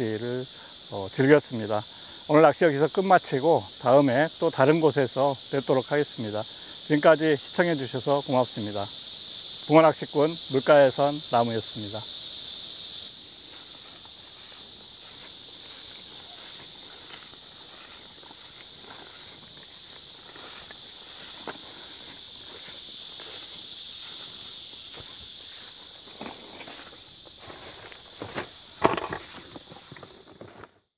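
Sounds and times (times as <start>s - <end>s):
insects hissing: 0.0s - 30.9s
footsteps through weeds: 12.0s - 30.8s.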